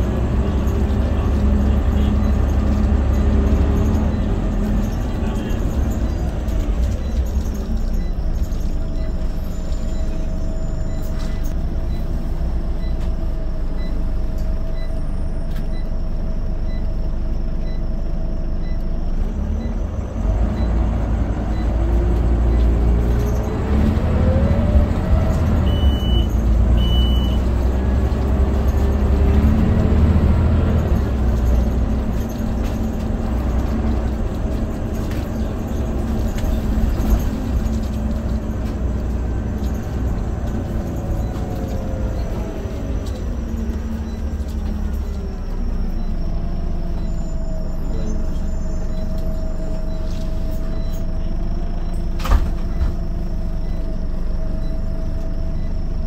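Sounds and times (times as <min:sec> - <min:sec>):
bus diesel engine: 0:00.0 - 0:56.0
short beeps: 0:25.6 - 0:27.5, 0:43.9 - 0:55.9.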